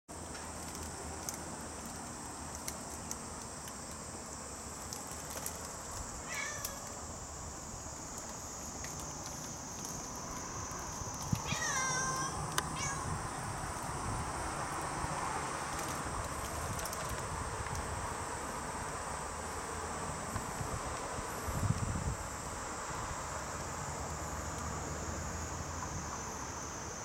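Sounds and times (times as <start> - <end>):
cicada buzzing: 0.9 - 27.0
cat meowing: 6.2 - 6.9, 11.4 - 13.2.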